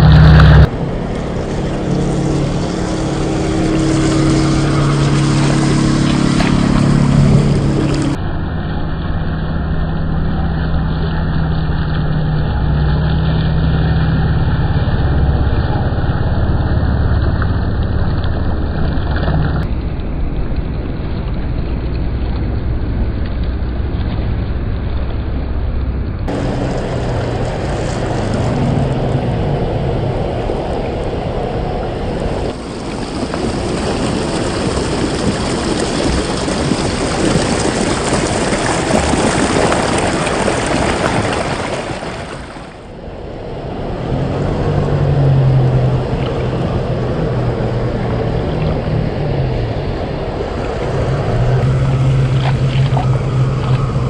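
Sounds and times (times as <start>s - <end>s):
electric motor and gears whirring: 0.0s - 19.7s
tyres churning through mud and water: 0.0s - 54.0s.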